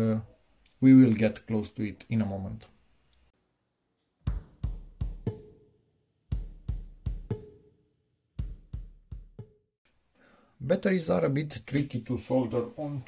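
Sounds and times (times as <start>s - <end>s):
punchy drum hits: 4.3s - 5.5s, 6.3s - 7.6s, 8.4s - 9.6s.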